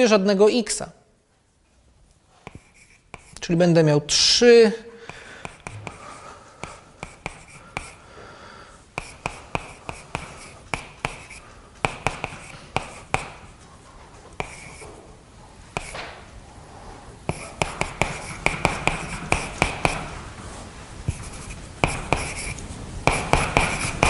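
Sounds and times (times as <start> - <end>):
chalk scratching on a blackboard: 2.4 - 3.4, 5.4 - 8.0, 9.0 - 13.6, 14.4 - 14.9, 15.8 - 16.0, 17.3 - 20.2, 21.1 - 24.0
chalk tapping on a blackboard: 2.4 - 3.4, 5.0 - 6.0, 6.6 - 8.0, 9.0 - 13.6, 14.4 - 14.9, 15.7 - 16.2, 17.3 - 20.2, 21.1 - 24.0.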